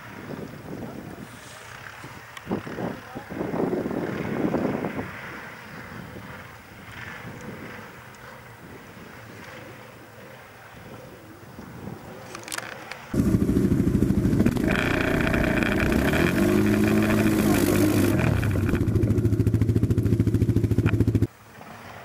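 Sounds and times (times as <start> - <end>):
quad bike engine revving: 13.1 - 21.3.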